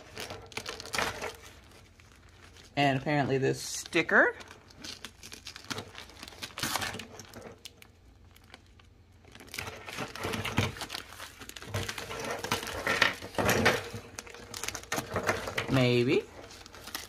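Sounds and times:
plastic wrap crinkling: 0:00.0 - 0:17.0.

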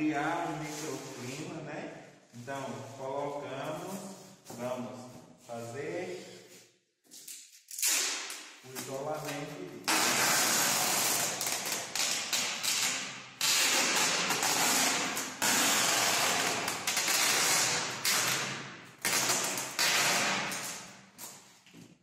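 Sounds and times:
adhesive tape tearing off roll: 0:07.3 - 0:08.6, 0:09.9 - 0:21.4.

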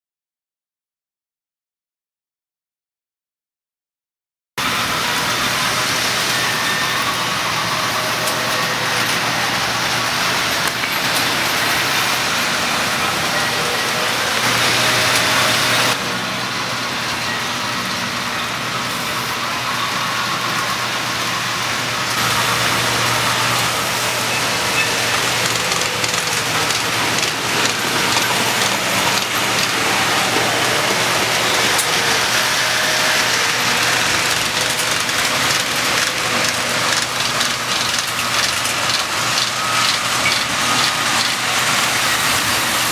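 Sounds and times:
toy train wheels clattering: 0:05.0 - 0:16.0, 0:22.1 - 0:42.9.

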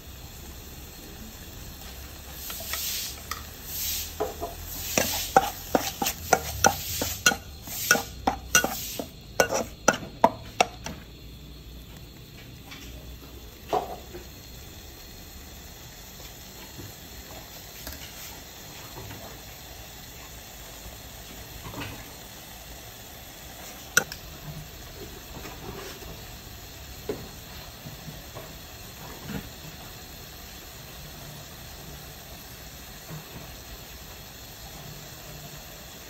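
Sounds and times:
paste sizzling in oil: 0:00.0 - 0:36.0
metal spatula scraping wok: 0:02.4 - 0:11.0.

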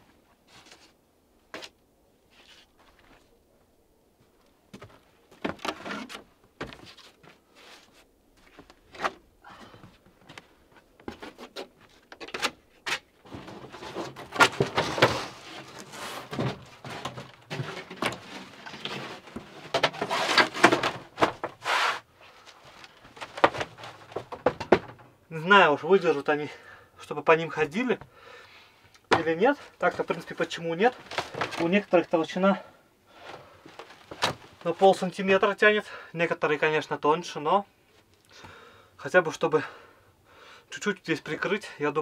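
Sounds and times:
wood scraping: 0:04.8 - 0:09.2, 0:10.2 - 0:25.1, 0:29.1 - 0:32.0
wooden slices knocking and clattering: 0:22.7 - 0:25.0.

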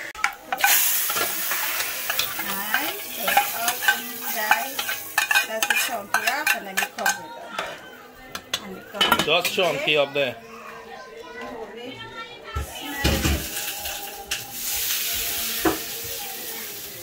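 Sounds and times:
hot oil sizzling: 0:00.0 - 0:07.2, 0:12.6 - 0:17.0
spoon clinking and scraping pan: 0:00.2 - 0:07.7.

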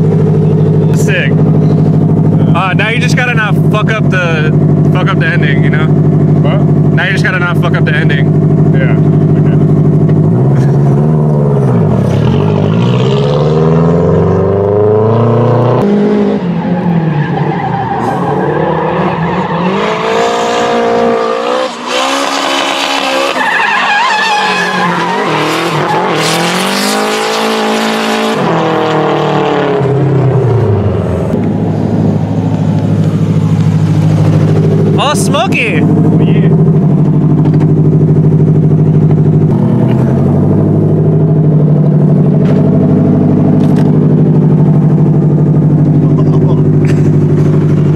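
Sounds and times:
car engine revving: 0:00.0 - 0:47.9
tyre squeal: 0:21.6 - 0:27.0.

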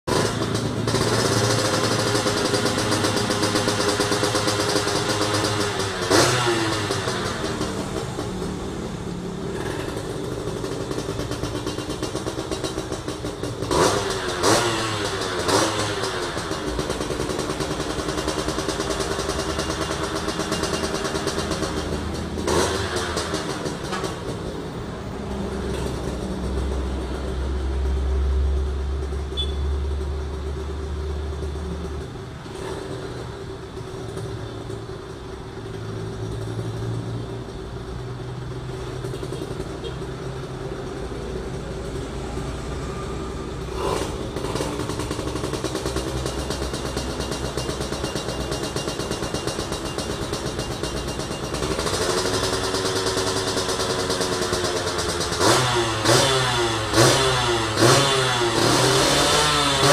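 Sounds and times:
two-stroke engine revving: 0:00.1 - 0:28.0, 0:41.8 - 0:59.9.

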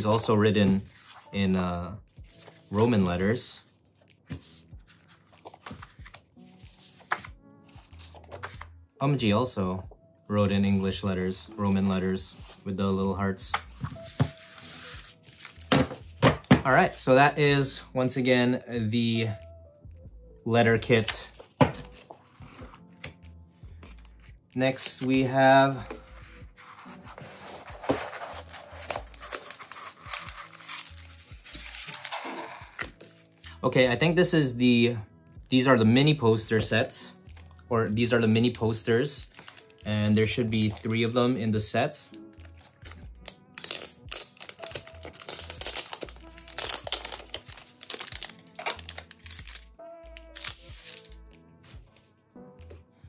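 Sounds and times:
background music with bass line: 0:05.7 - 0:53.0
packaging crinkling and rustling: 0:26.6 - 0:33.3, 0:39.2 - 0:41.2, 0:42.1 - 0:51.8.

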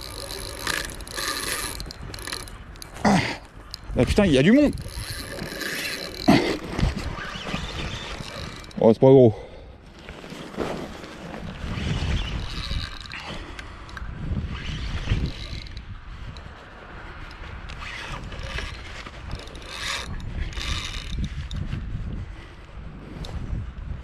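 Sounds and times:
fishing reel gears whirring: 0:00.0 - 0:08.8, 0:11.6 - 0:16.5, 0:17.3 - 0:21.6
rumbling from rod handling: 0:00.0 - 0:08.8.

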